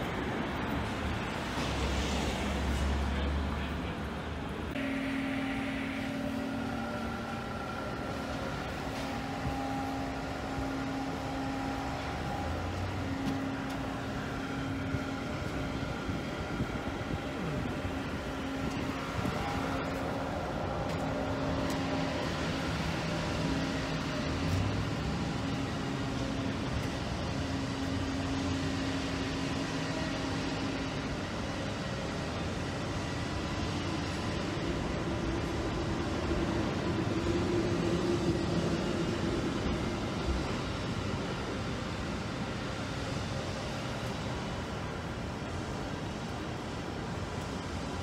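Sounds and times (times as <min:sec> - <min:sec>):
cars passing on street: 0:00.0 - 0:48.0
construction machinery: 0:00.0 - 0:48.0
steady mechanical hum: 0:00.0 - 0:48.0.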